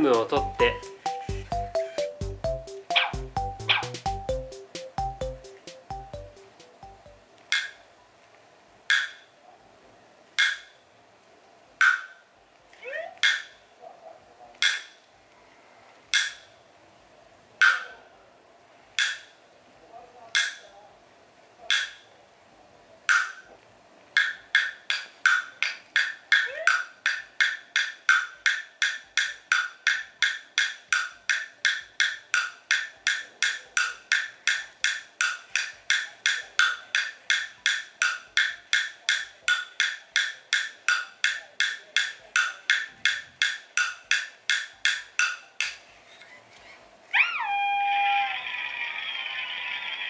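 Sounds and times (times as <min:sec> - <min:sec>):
wood block struck with stick: 0:00.0 - 0:07.8, 0:08.9 - 0:09.3, 0:10.4 - 0:10.8, 0:11.8 - 0:12.2, 0:13.2 - 0:13.6, 0:14.6 - 0:15.0, 0:16.1 - 0:16.5, 0:17.6 - 0:18.0, 0:19.0 - 0:19.4, 0:20.4 - 0:20.6, 0:21.7 - 0:22.1, 0:23.1 - 0:23.5, 0:24.2 - 0:45.8.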